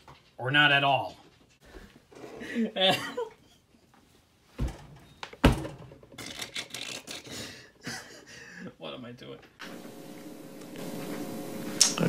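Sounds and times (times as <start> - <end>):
objects clattering on hard surface: 4.6 - 7.4.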